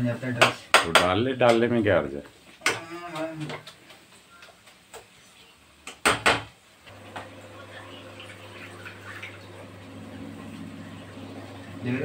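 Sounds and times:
water running into vessel: 6.9 - 12.0.

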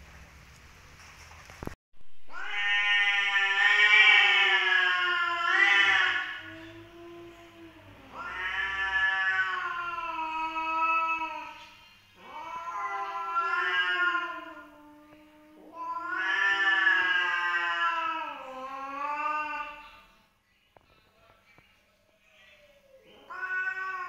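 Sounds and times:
cats caterwauling: 2.3 - 19.8, 22.5 - 24.0.

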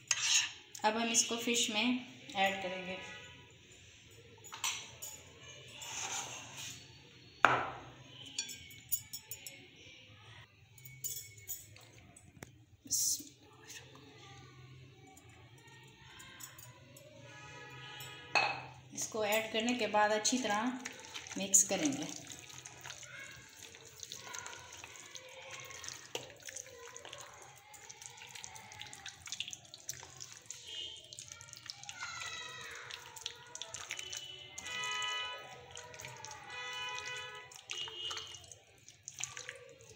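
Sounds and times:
glass bowl clinking: 4.1 - 6.8, 7.4 - 9.8, 10.8 - 12.2, 15.7 - 17.1, 17.8 - 21.1
bowl set down on counter: 7.5 - 7.9, 18.3 - 18.7
hands squelching batter: 20.3 - 39.9.

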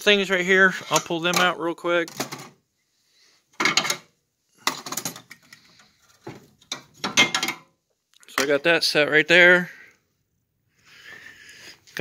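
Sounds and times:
steel tools clattering on metal: 3.6 - 5.6, 6.6 - 7.7.

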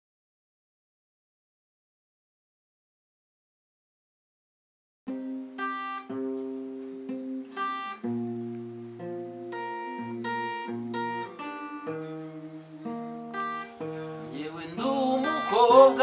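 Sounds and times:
acoustic guitar playing: 5.1 - 16.0.

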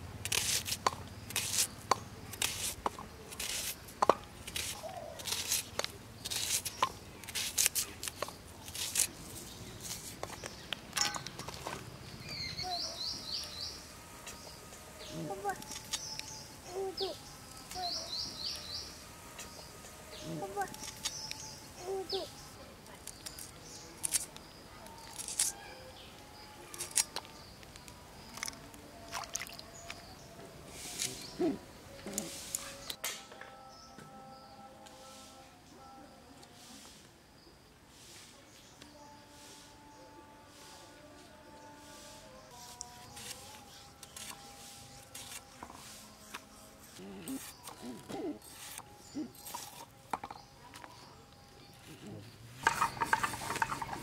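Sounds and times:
chillies sliced on blade: 0.2 - 1.7, 2.3 - 3.8, 4.4 - 9.1, 25.1 - 25.6.

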